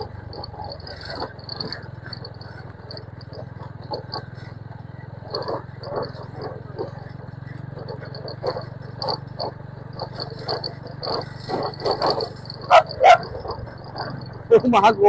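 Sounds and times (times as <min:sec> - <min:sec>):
insect chirping: 0:00.0 - 0:15.0
motorcycle engine running: 0:00.0 - 0:15.0
dog yelping: 0:05.2 - 0:15.0.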